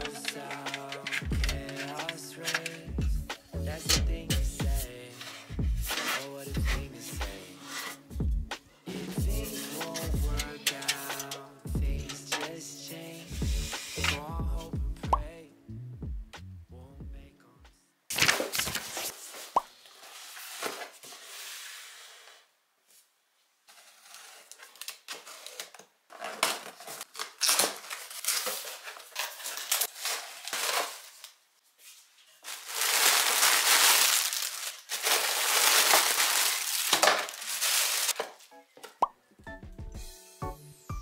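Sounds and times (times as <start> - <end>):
packing material crumpling: 0.0 - 2.9, 23.7 - 31.4, 32.0 - 38.4.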